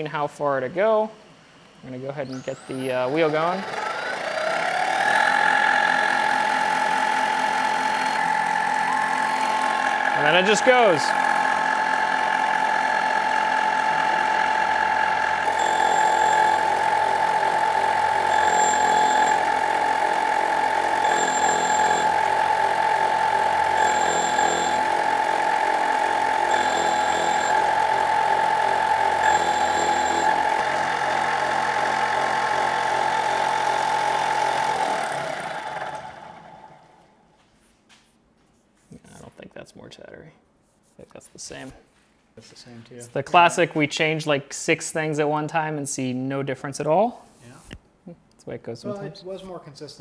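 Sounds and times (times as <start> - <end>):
grinder spindle whine: 2.2 - 37.1
grinding wheel skimming metal: 2.5 - 36.7.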